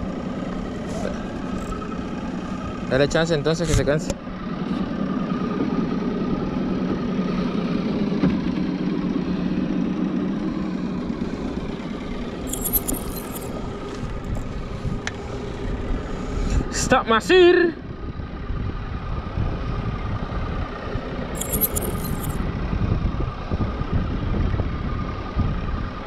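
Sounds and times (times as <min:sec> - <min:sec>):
high clicking: 0:12.5 - 0:13.5, 0:21.4 - 0:22.4.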